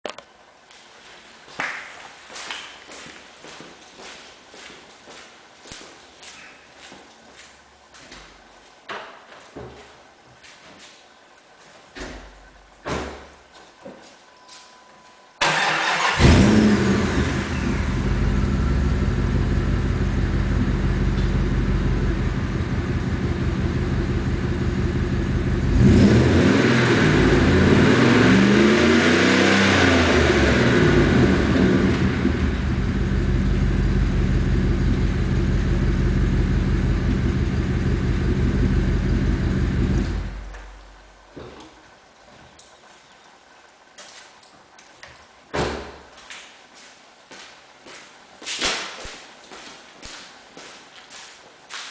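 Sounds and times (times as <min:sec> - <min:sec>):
engine revving: 0:15.4 - 0:19.2, 0:25.5 - 0:33.0
car engine starting and idling: 0:15.4 - 0:41.3.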